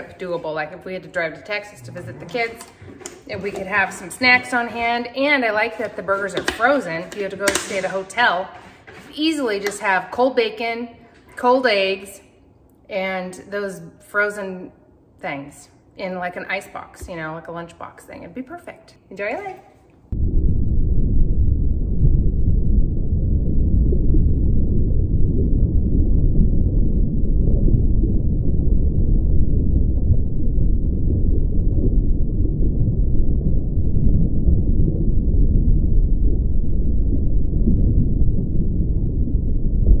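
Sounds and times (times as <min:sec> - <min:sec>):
muffled underwater rumbling: 0:00.0 - 0:07.4, 0:20.1 - 0:40.0.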